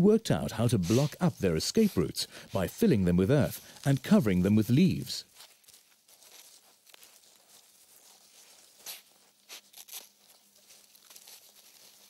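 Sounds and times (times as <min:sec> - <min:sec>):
claws scraping sandy soil: 0:00.6 - 0:02.7.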